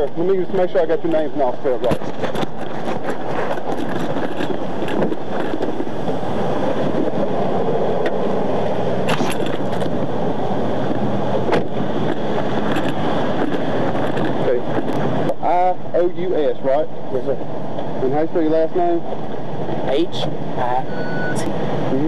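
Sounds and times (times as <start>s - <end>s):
steady rushing noise: 0.0s - 22.0s.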